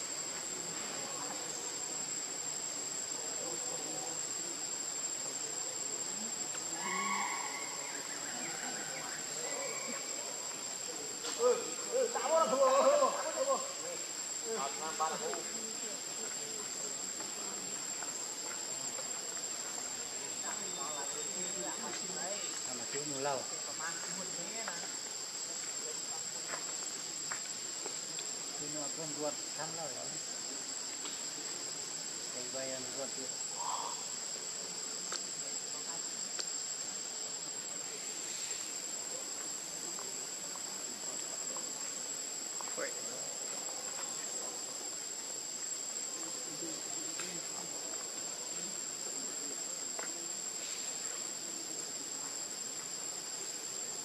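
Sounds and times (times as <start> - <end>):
rustles: 4.3 - 54.0
shrill insect drone: 6.7 - 10.3.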